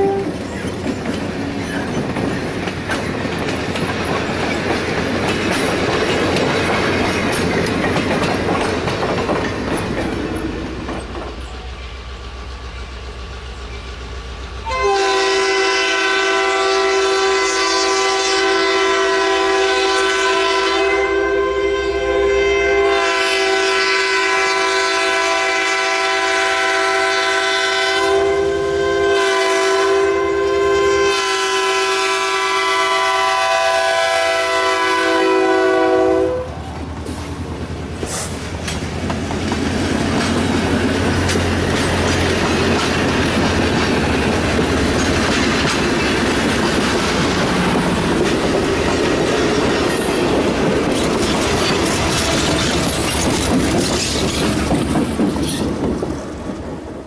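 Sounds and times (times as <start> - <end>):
locomotive air horn blasts: 0.0 - 0.4, 14.6 - 36.8
train rumbling past: 0.0 - 57.0
wheels clicking over rail joints: 0.3 - 14.7, 36.8 - 56.8.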